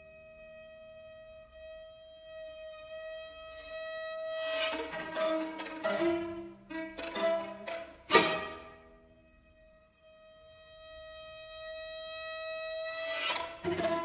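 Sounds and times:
string quartet playing: 4.4s - 9.7s, 12.8s - 14.0s.

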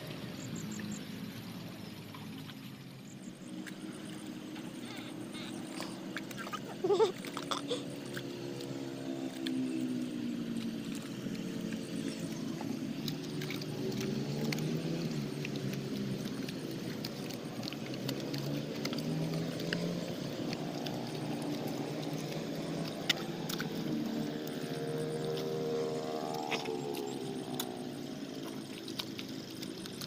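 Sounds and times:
motor engine running: 0.0s - 30.0s.

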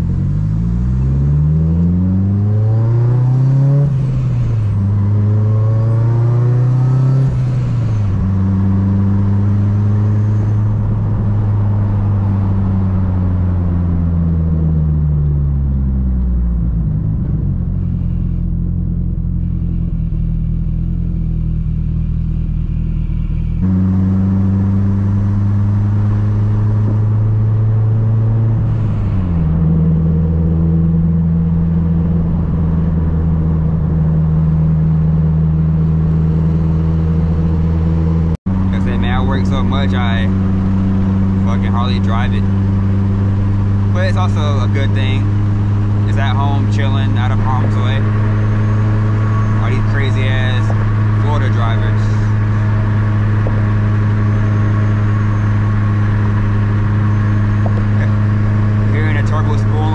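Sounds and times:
car engine revving in cabin: 0.0s - 59.9s
gear change: 16.1s - 59.9s.

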